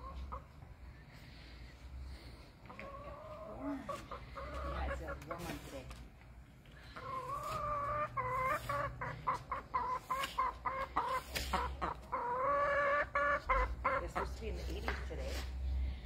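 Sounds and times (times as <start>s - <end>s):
hen calling: 6.9s - 14.2s.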